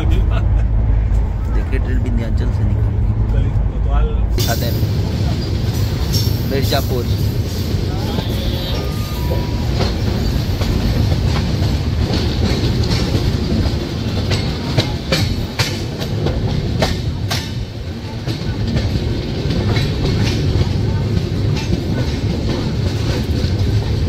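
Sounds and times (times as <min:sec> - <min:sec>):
train coaches rumbling: 0:00.0 - 0:24.0
wheels clicking over rail joints: 0:05.4 - 0:24.0.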